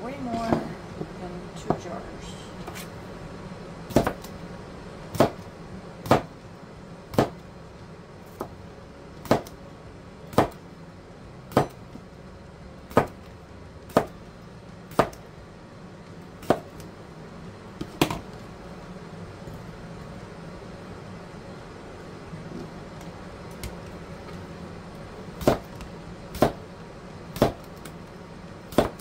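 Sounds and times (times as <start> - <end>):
knife chopping on cutting board: 3.9 - 4.3, 5.1 - 5.4, 6.0 - 6.3, 7.1 - 7.4, 9.2 - 9.6, 10.3 - 10.6, 11.5 - 11.8, 12.9 - 13.2, 13.9 - 14.2, 14.9 - 15.2, 16.4 - 16.8, 25.4 - 26.6, 27.4 - 27.7, 28.7 - 29.0.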